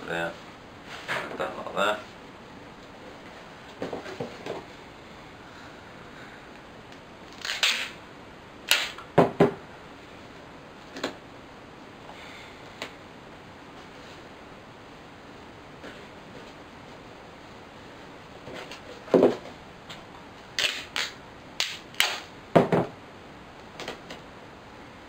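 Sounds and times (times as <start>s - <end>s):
tape ripping off roll: 7.3s - 8.0s, 8.7s - 9.0s, 20.6s - 22.3s.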